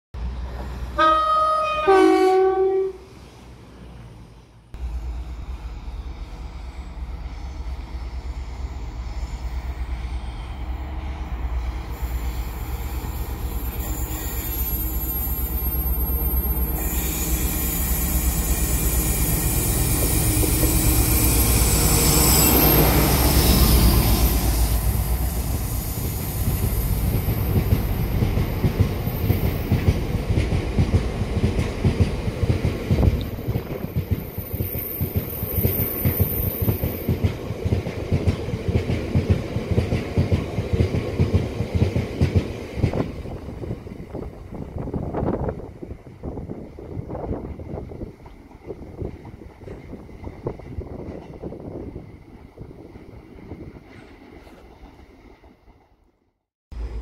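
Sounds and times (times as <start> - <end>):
diesel locomotive engine rumble: 0.2 - 56.1, 56.7 - 57.0
train horn two-tone: 1.0 - 3.1.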